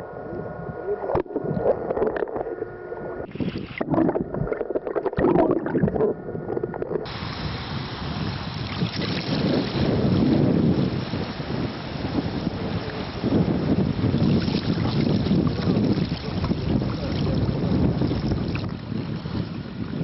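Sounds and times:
wind buffeting microphone: 0:05.2 - 0:20.0
splashing river water: 0:07.1 - 0:20.0.

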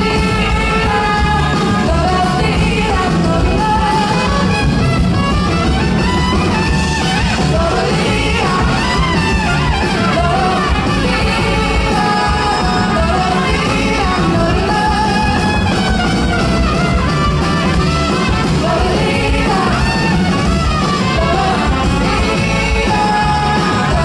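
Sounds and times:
woman singing: 0:00.0 - 0:04.6, 0:07.4 - 0:15.9, 0:18.4 - 0:20.3, 0:21.0 - 0:24.0
band playing: 0:00.0 - 0:24.0.

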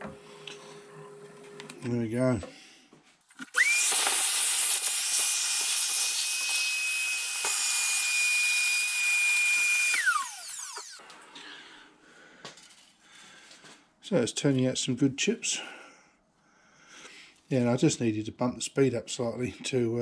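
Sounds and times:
vacuum cleaner whine: 0:03.4 - 0:11.0.

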